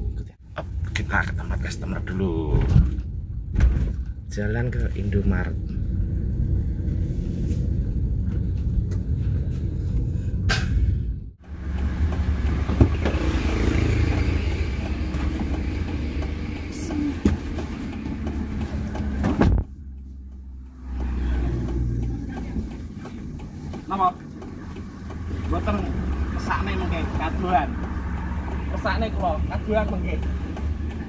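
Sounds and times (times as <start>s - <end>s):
car engine rumble from inside: 0.0s - 31.0s
outside noise: 0.0s - 31.0s
clicks and knocks of passenger: 11.7s - 27.9s
car door thud: 19.2s - 19.7s.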